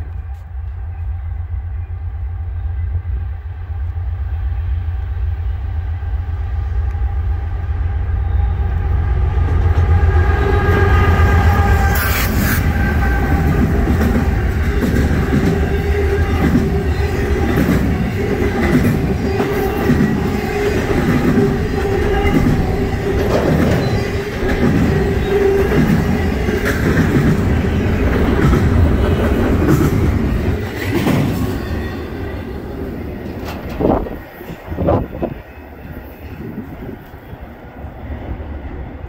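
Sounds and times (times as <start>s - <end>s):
train wheels clattering over rail joints: 13.2s - 31.6s.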